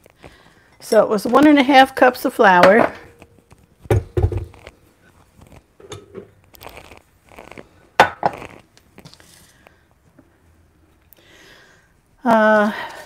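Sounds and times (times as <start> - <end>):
rustling and scraping: 3.1 - 9.8.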